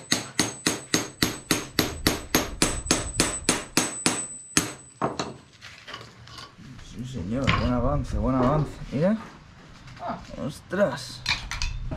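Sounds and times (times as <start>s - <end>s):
hammer striking chisel: 0.0s - 5.4s.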